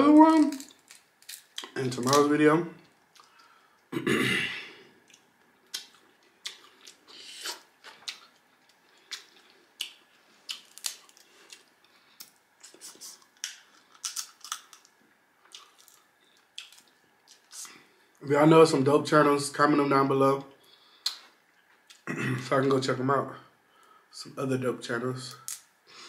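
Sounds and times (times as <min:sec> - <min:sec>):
crab shell cracking: 0:00.4 - 0:02.2, 0:05.1 - 0:12.4, 0:13.2 - 0:17.5.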